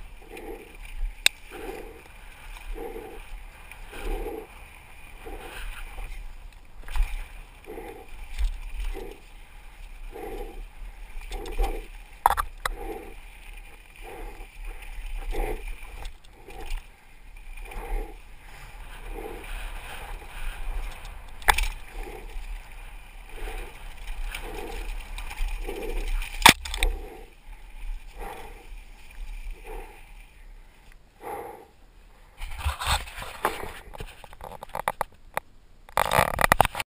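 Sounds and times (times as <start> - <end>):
bike tyres rumbling on dirt: 0.0 - 30.4.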